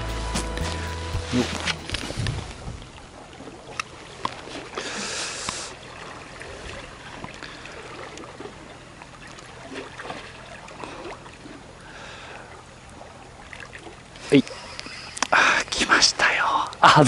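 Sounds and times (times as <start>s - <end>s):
waves lapping on rocks: 1.3s - 16.9s.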